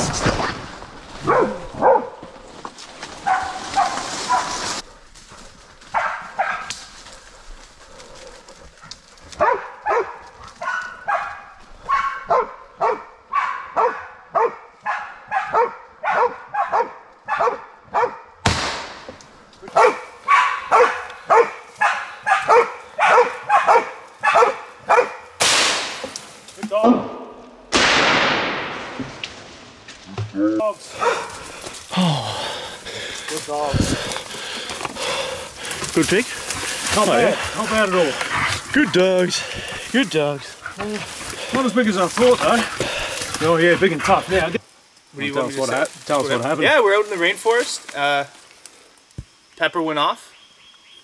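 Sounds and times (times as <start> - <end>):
dog barking: 1.2 - 2.2, 3.2 - 4.6, 5.9 - 6.7, 9.4 - 18.4, 19.7 - 25.4, 31.0 - 31.3.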